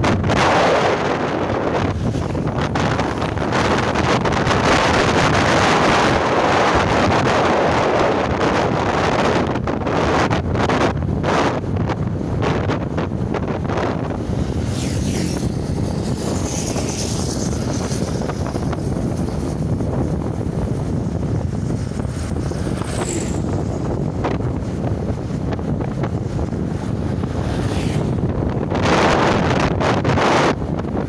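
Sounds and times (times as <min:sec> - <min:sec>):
road noise: 0:00.0 - 0:31.0
wind buffeting microphone: 0:00.0 - 0:31.0
motorcycle engine: 0:10.8 - 0:31.0.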